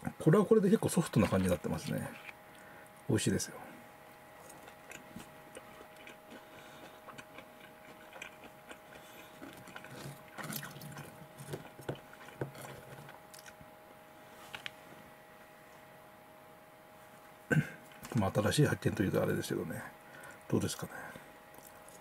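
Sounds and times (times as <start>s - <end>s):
person chewing: 4.4s - 13.7s, 21.5s - 22.0s.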